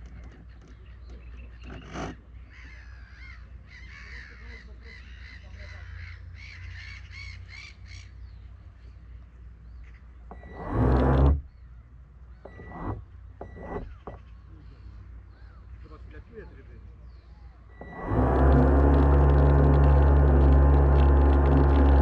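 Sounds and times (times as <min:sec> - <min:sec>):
boat motor hum: 0:00.0 - 0:02.4, 0:10.2 - 0:11.5, 0:12.4 - 0:14.3, 0:17.6 - 0:22.0
harsh crow-like bird calls: 0:02.4 - 0:08.2.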